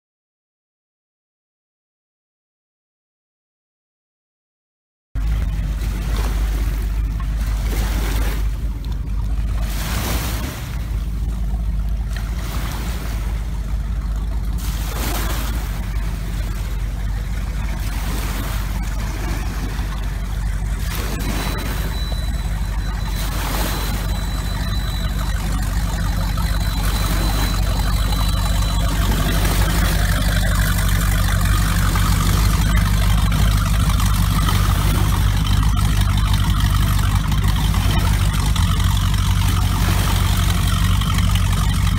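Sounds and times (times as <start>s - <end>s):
boat engine humming: 5.2s - 41.9s.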